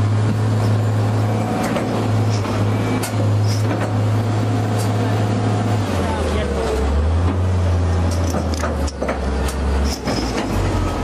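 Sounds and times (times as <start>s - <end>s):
excavator diesel engine under load: 0.0s - 11.0s
sharp clicks and knocks: 7.2s - 10.8s.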